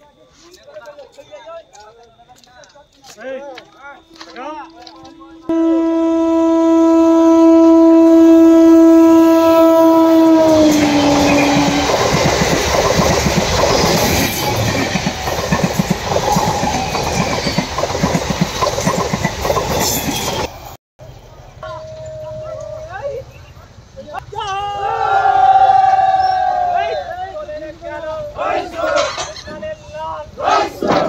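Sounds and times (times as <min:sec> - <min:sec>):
train horn blast: 0:04.1 - 0:11.9
train wheels clattering over rail joints: 0:11.3 - 0:20.5.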